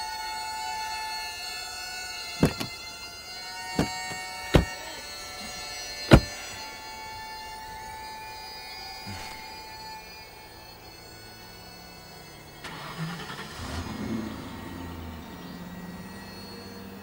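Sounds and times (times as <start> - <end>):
sustained droning chord: 0.0 - 17.0
sharp thuds: 2.4 - 2.9, 3.7 - 6.7.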